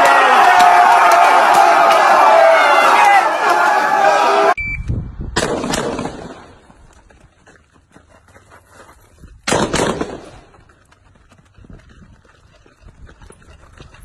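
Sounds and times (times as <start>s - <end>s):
rifle shots with echo: 5.4s - 6.6s, 9.5s - 10.5s.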